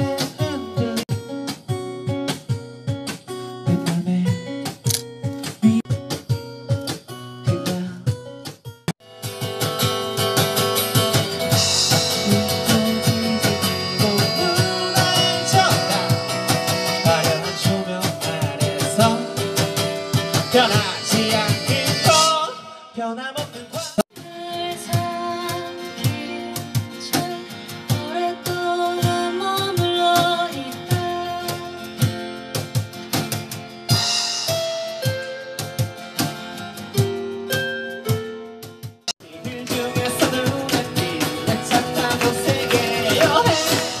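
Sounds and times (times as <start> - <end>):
person singing: 0.0 - 1.1, 7.4 - 8.1, 11.7 - 19.6, 20.3 - 31.9, 39.2 - 44.0
percussion: 0.0 - 22.7, 23.3 - 44.0
strummed acoustic guitars: 0.0 - 44.0.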